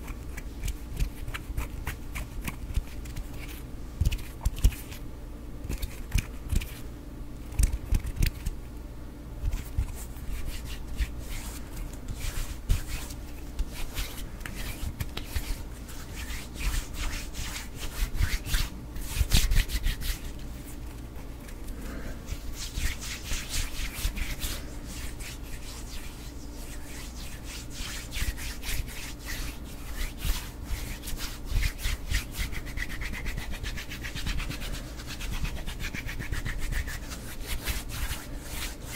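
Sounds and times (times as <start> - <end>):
hands rubbing together: 9.4 - 38.9.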